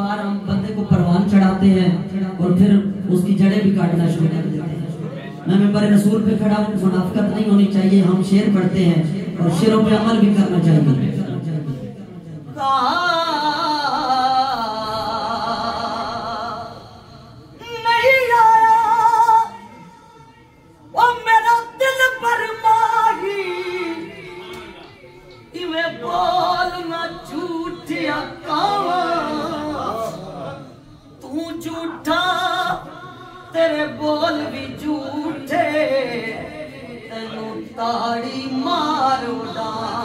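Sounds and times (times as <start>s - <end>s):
man singing unaccompanied: 21.0s - 30.5s, 31.2s - 40.0s.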